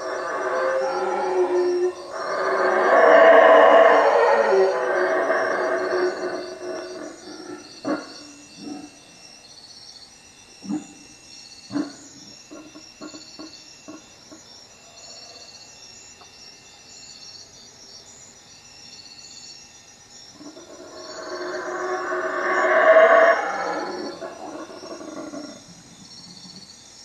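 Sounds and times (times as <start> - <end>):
howler monkeys roaring: 0.0 - 9.1, 20.4 - 26.7
crickets chirping: 0.0 - 27.0.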